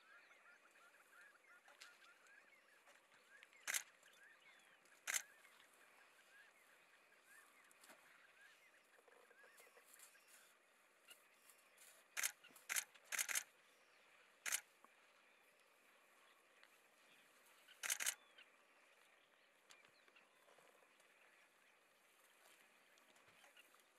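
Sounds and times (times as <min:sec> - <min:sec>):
faint outdoor background: 0:00.0 - 0:23.9
sharp clicking bursts: 0:03.6 - 0:03.9, 0:12.2 - 0:13.5, 0:14.4 - 0:14.6, 0:17.8 - 0:18.2.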